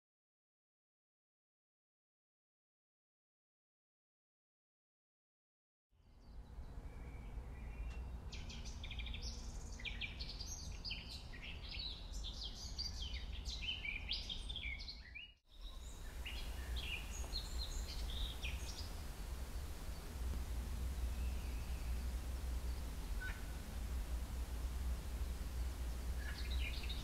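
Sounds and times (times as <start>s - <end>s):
birds chirping and trilling: 6.0s - 27.0s
steady low rumble: 15.6s - 27.0s.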